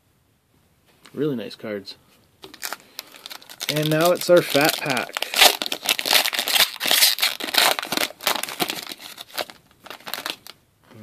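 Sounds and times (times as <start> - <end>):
foil wrapper tearing and crinkling: 2.5 - 10.6.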